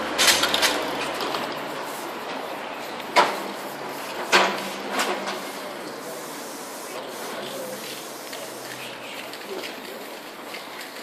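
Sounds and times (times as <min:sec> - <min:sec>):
background noise: 0:00.0 - 0:11.0
spray-paint can hissing: 0:02.8 - 0:11.0.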